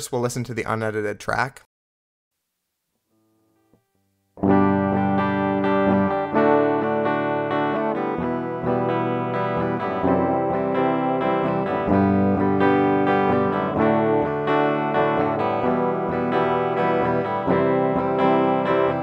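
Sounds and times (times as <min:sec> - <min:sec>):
background noise: 0:00.0 - 0:01.7, 0:02.3 - 0:04.7
guitar plucked notes and chords: 0:03.1 - 0:19.0.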